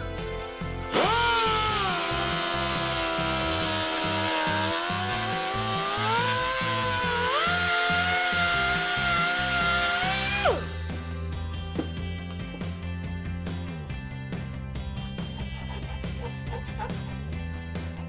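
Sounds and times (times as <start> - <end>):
background music: 0.0 - 18.0
grinder cutting plastic: 0.8 - 10.8, 15.0 - 18.0.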